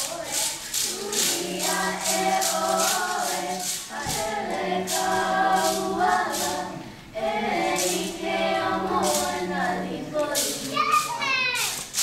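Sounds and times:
wooden sticks clicking: 0:00.0 - 0:06.7, 0:07.4 - 0:11.0, 0:11.6 - 0:12.0
group of voices singing: 0:00.0 - 0:11.0.

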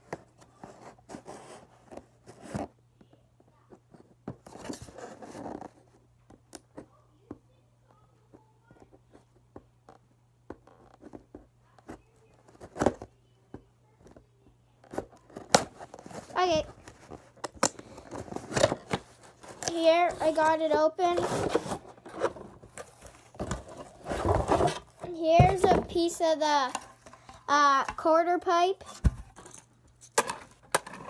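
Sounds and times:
faint low hum: 0:00.0 - 0:31.0
cardboard packaging rustling: 0:14.8 - 0:27.3.

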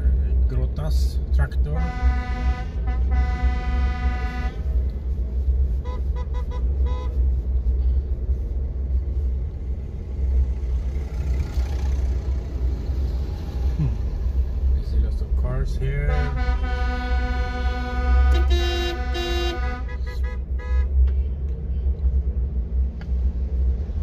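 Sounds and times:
vehicle driving rumble: 0:00.0 - 0:24.0
vehicle horn honking: 0:01.8 - 0:04.6, 0:05.8 - 0:07.1, 0:16.1 - 0:21.0.

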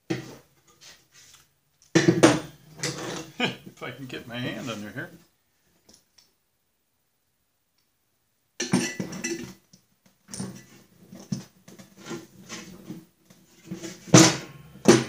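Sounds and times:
metal clinking and scraping: 0:02.0 - 0:03.4.

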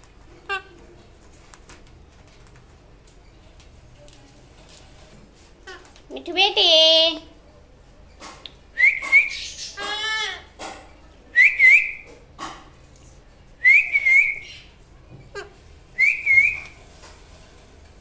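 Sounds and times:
short wavering whistles: 0:16.0 - 0:16.7.

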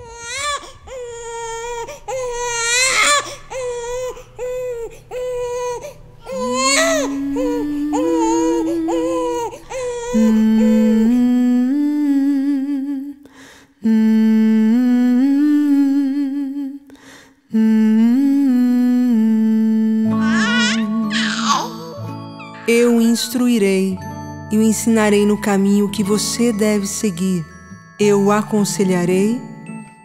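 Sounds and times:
baby crying: 0:00.0 - 0:11.2, 0:20.1 - 0:22.1
person humming: 0:04.4 - 0:22.1.

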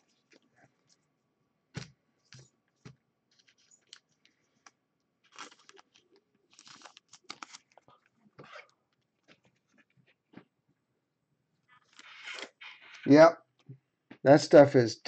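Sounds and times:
trading card rustling in plastic sleeve: 0:03.3 - 0:08.1.

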